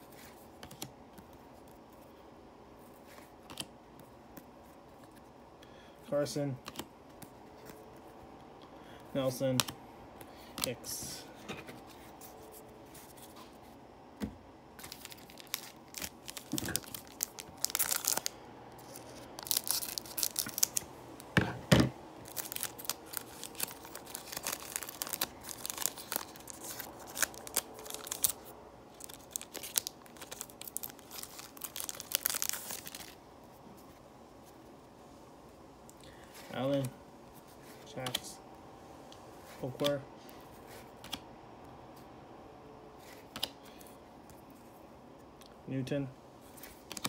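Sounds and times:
foil wrapper crinkling and tearing: 14.8 - 20.9, 22.2 - 33.2.

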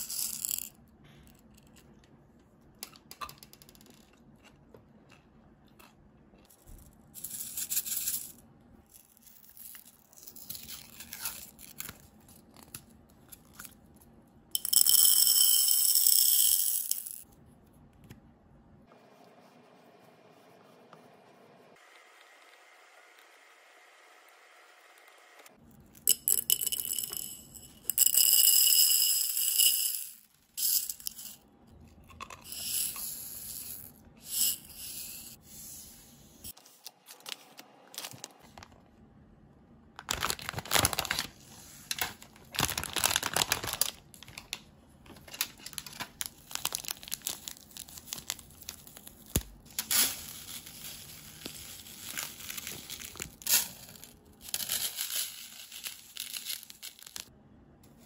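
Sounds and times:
plastic packets crinkling and tearing: 40.0 - 53.5.

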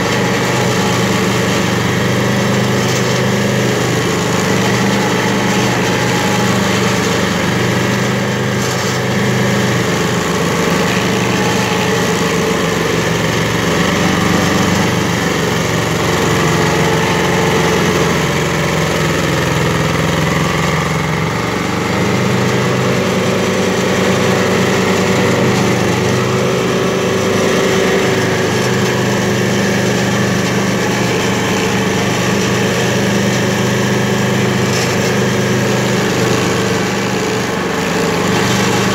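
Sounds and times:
cutter wheel grinding wood: 0.0 - 38.9
stump grinder engine under load: 0.0 - 38.9.

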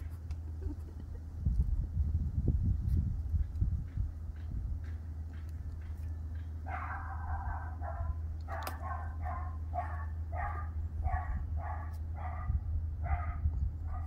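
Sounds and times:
steady low hum: 0.0 - 14.0
puppy barking high-pitched: 6.6 - 14.0.

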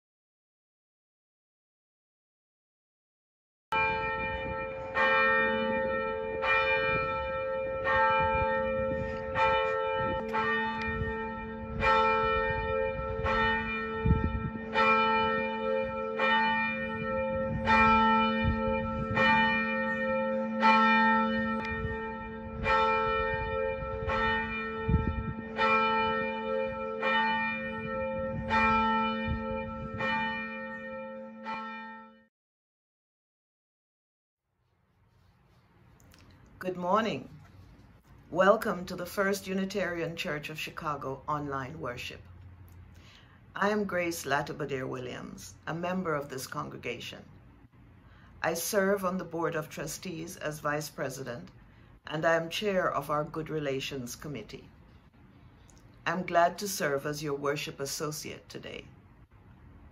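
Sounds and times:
church bell tolling: 3.7 - 32.3.

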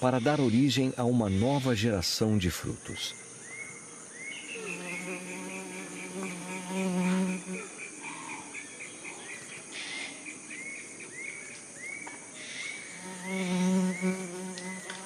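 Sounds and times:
short arching insect chirp: 2.6 - 15.0
flying insect buzzing: 4.5 - 8.5, 12.8 - 15.0.

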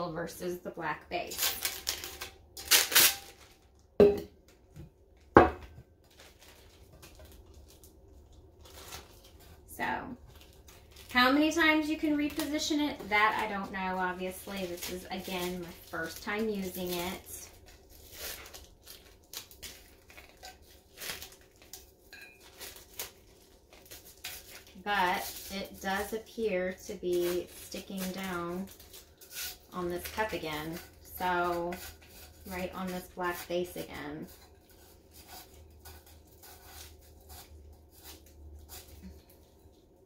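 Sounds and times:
vinyl sheet peeling off: 1.4 - 3.6
knocks on countertop: 4.0 - 4.3, 5.4 - 5.8
soft rustles of vinyl: 6.1 - 40.0.

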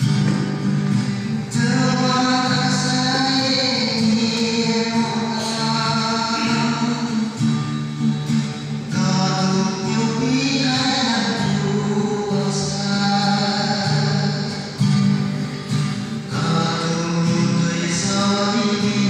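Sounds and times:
acoustic guitar: 0.0 - 19.0
man singing: 1.0 - 15.1, 16.0 - 19.0.

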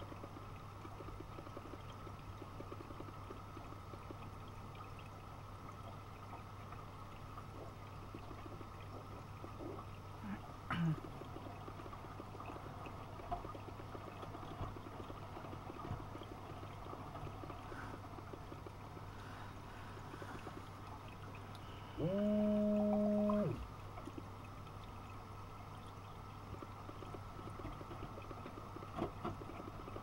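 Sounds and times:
washing machine hum: 21.8 - 23.7.

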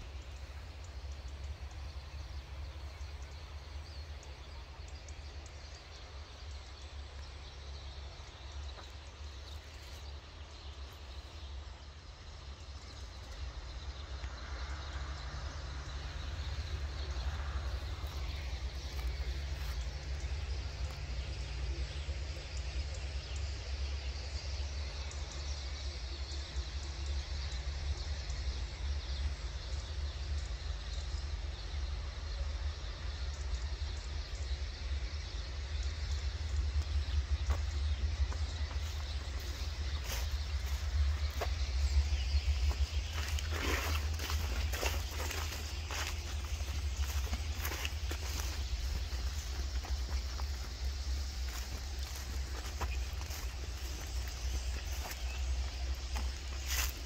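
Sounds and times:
low rumble: 0.0 - 57.0
starlings chattering: 33.8 - 57.0.

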